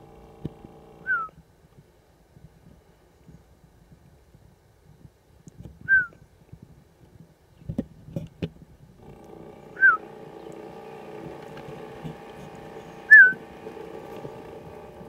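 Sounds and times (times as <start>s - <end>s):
steady low hum: 0.0s - 15.0s
whistled note slurring down: 9.8s - 10.0s, 13.1s - 13.4s.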